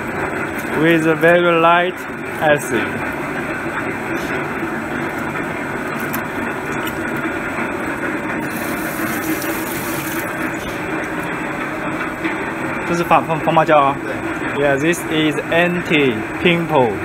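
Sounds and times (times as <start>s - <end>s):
workshop machinery drone: 0.0s - 17.0s
water splashing in tub: 8.4s - 10.6s.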